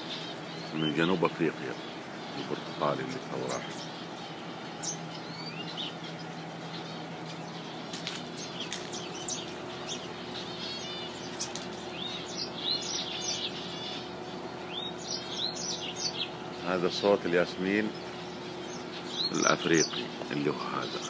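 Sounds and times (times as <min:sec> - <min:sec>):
faint steady hum: 0:00.0 - 0:21.0
finches chirping and twittering: 0:00.0 - 0:21.0.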